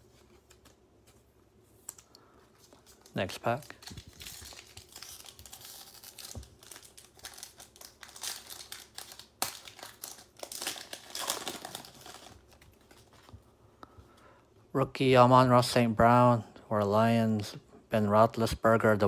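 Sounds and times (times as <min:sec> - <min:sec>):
cards rustling: 0:00.0 - 0:13.4
foil wrapper crinkling and tearing: 0:02.6 - 0:13.3.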